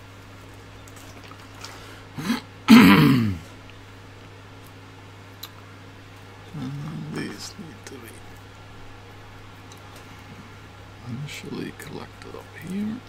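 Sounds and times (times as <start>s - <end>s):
man clearing his throat: 2.2s - 3.5s
soft vocal sound: 6.5s - 7.3s.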